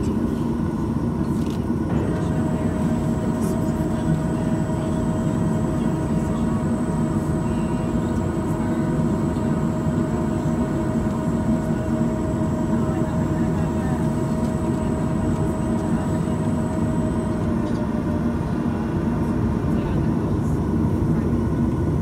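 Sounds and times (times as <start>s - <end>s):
aircraft cabin rumble: 0.0s - 22.0s
steady whine: 0.0s - 22.0s.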